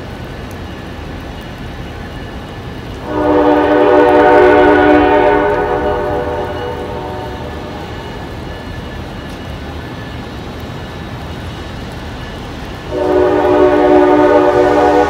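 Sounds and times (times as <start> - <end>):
locomotive rumble: 0.0 - 15.0
locomotive air horn: 3.0 - 7.9, 12.9 - 15.0.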